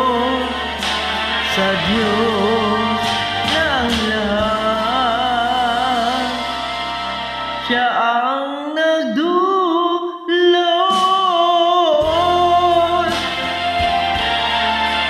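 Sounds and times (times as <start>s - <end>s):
karaoke backing track: 0.0s - 15.0s
woman singing: 1.4s - 4.9s.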